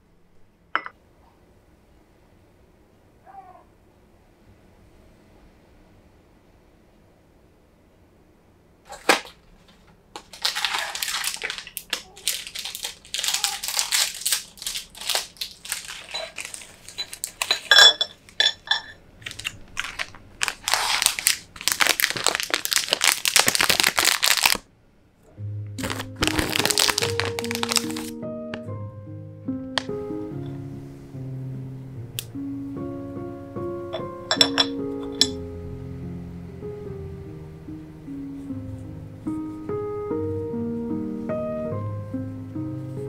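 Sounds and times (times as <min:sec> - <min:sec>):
plastic packaging crinkling: 0:08.9 - 0:24.7, 0:25.8 - 0:28.2
music: 0:25.3 - 0:43.0.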